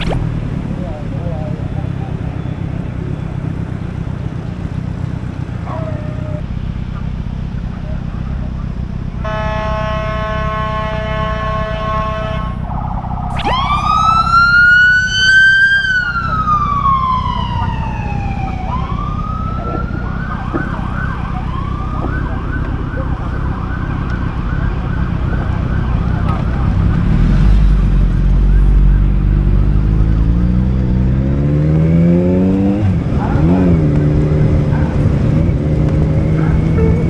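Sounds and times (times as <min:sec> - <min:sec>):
motorcycle siren yelping: 0:00.0 - 0:00.2, 0:05.5 - 0:07.1, 0:13.3 - 0:27.4, 0:34.4 - 0:37.0
motorcycle engine rumble: 0:00.0 - 0:31.5, 0:32.1 - 0:37.0
wind: 0:00.0 - 0:37.0.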